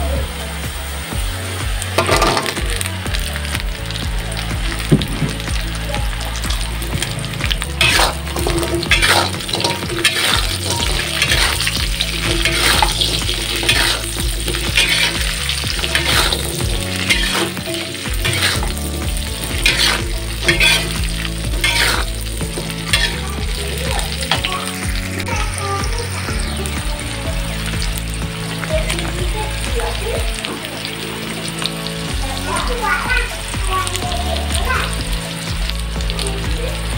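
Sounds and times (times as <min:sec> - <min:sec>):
food sizzling in a wok: 0:00.0 - 0:36.9
metal spatula scraping pan: 0:07.8 - 0:23.3.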